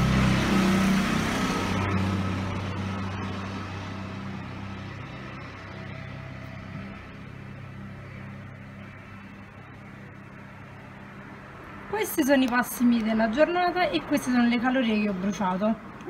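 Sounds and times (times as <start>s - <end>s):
vehicle engine humming: 0.0s - 16.0s.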